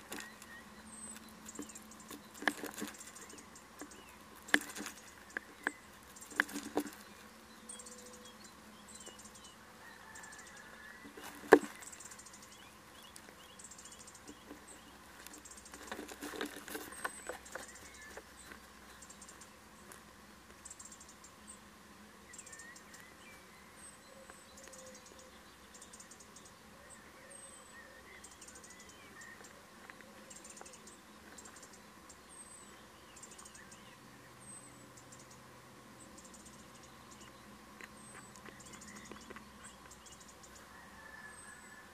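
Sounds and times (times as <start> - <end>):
owl scratching in wooden box: 0.0 - 7.2, 10.1 - 12.4, 13.0 - 20.1.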